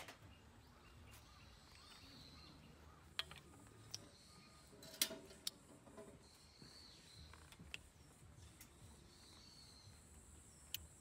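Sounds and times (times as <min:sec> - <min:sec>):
metal tongs clinking on grill grate: 0:04.8 - 0:05.5.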